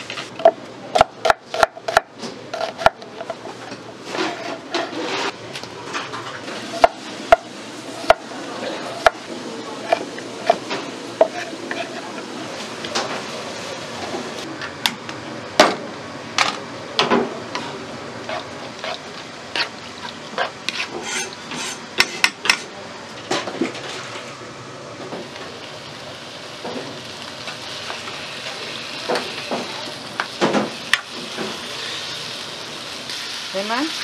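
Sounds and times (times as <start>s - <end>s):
spatula knocking and scraping pan: 9.9s - 12.0s, 20.3s - 22.6s
food sizzling in a frying pan: 25.2s - 34.0s.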